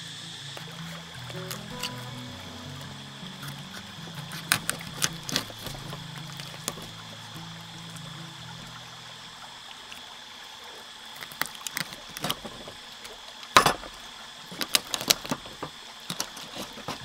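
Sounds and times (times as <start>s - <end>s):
faint high-pitched tone: 0.0s - 5.0s
clicks and knocks of objects handled: 0.6s - 6.9s, 11.2s - 13.9s, 14.5s - 17.0s.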